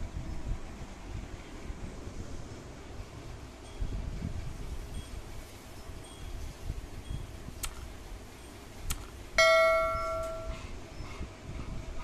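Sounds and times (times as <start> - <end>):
sharp clicks: 7.6 - 7.9, 8.9 - 9.2
bright bell ding: 9.4 - 10.6.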